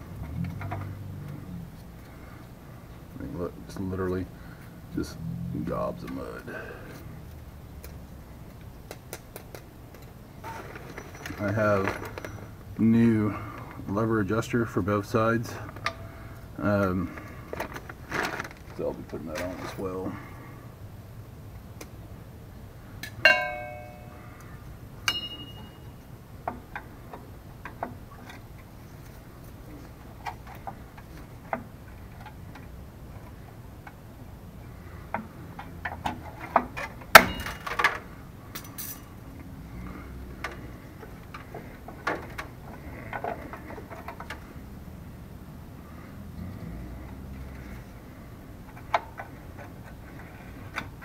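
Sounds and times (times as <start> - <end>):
hand tools clinking on metal: 23.0 - 24.4, 25.0 - 26.0, 35.6 - 39.2.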